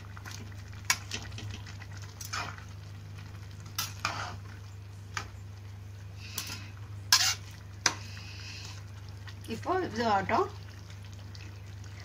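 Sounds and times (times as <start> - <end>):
spatula scraping a pan: 3.8 - 4.4, 6.4 - 8.0.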